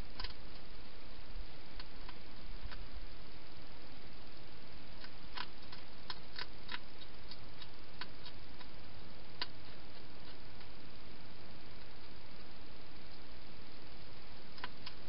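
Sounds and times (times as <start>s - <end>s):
steady hiss: 0.0s - 15.0s
hedgehog chewing clicks: 0.2s - 0.6s, 5.0s - 8.8s, 9.4s - 10.8s, 14.5s - 15.0s.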